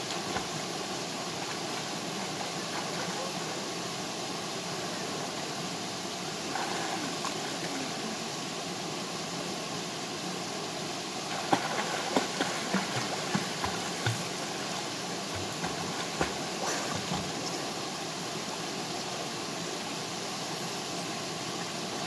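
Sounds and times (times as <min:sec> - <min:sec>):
swimmer splashing: 0:00.0 - 0:03.7, 0:06.3 - 0:08.2, 0:11.2 - 0:17.7
stream and small waterfall rushing: 0:00.0 - 0:22.0.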